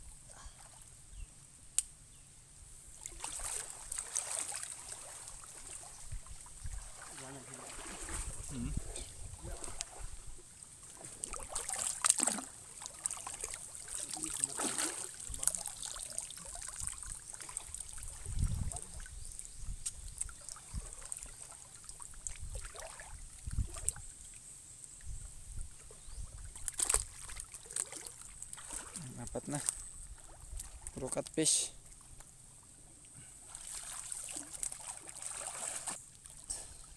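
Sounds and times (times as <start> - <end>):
water splashing and sloshing: 2.8 - 36.9
water dribbling: 3.0 - 24.3, 25.0 - 32.2.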